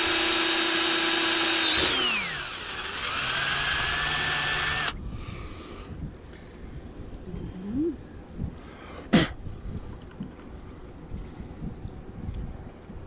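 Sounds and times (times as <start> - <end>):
cordless drill motor whining: 0.0 - 5.0.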